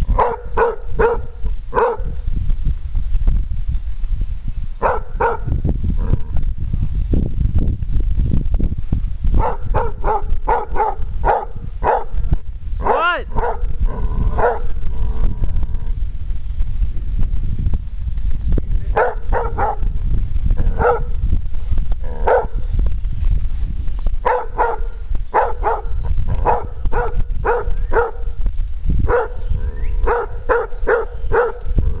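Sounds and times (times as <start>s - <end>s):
dog barking: 0.1s - 2.1s, 4.8s - 5.5s, 9.4s - 12.2s, 12.8s - 13.7s, 14.4s - 14.7s, 18.9s - 19.9s, 20.7s - 21.1s, 22.2s - 22.6s, 24.2s - 28.3s, 29.0s - 29.4s, 30.0s - 31.7s.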